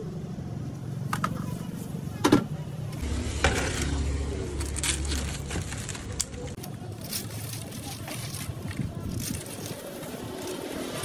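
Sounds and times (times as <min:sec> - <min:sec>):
motor vehicle running: 0:02.8 - 0:11.0.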